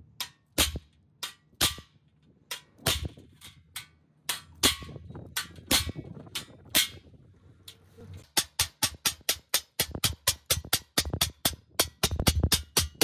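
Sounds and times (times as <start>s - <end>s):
hammer striking steel chisel: 8.2s - 13.0s.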